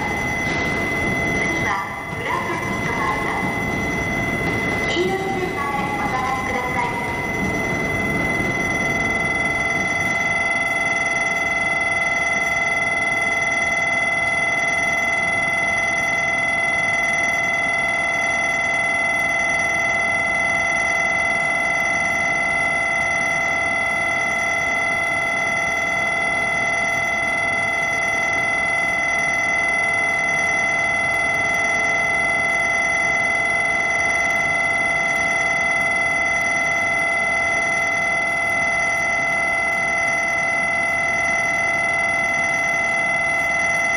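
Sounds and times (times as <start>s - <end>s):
platform departure bell ringing: 0.0s - 43.9s.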